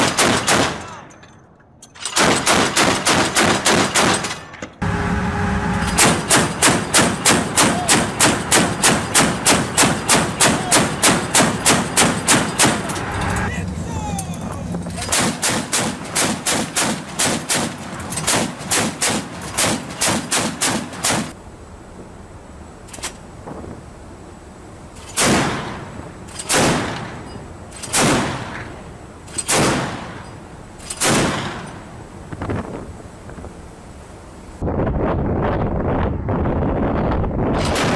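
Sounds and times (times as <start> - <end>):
automatic gun firing: 0.0 - 1.0, 2.1 - 4.5, 6.0 - 12.9, 15.0 - 21.3, 25.2 - 25.8, 26.5 - 27.1, 27.9 - 28.6, 29.4 - 30.1, 31.0 - 31.7.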